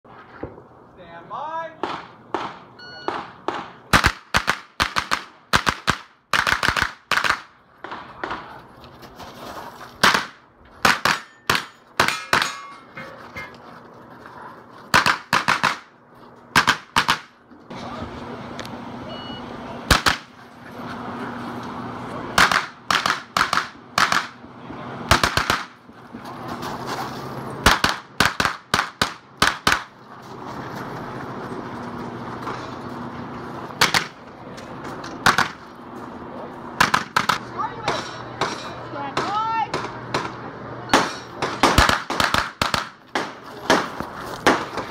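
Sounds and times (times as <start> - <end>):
carbine gunshots: 39.7 - 44.8.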